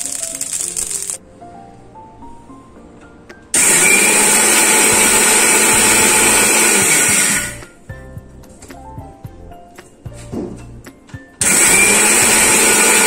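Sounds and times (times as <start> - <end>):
soft background music: 0.0 - 13.0
mixer grinder motor grinding spices: 3.6 - 7.6, 11.4 - 13.0.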